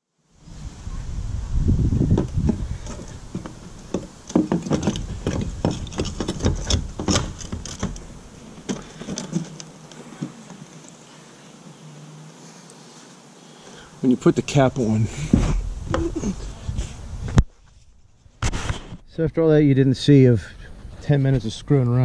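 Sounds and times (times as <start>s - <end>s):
low rustling handling noise: 2.0s - 13.4s
clicks and knocks of parts: 2.5s - 11.0s.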